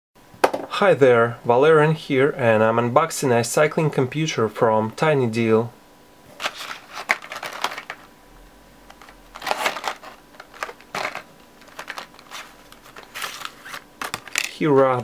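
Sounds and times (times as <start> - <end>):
plastic blister pack crackling: 6.4 - 8.1, 8.9 - 15.0.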